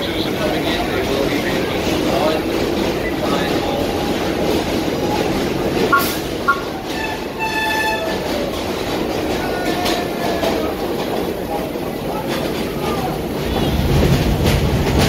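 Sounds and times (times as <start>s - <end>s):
subway train rumbling: 0.0s - 15.0s
short beeps: 5.9s - 6.7s
train horn: 5.9s - 8.3s.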